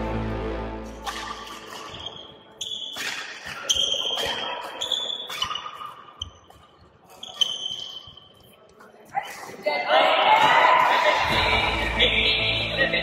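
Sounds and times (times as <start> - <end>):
background music: 0.0 - 1.8, 11.0 - 13.0
racket hitting shuttlecock: 0.9 - 8.2
shoes squeaking on court: 1.1 - 9.6.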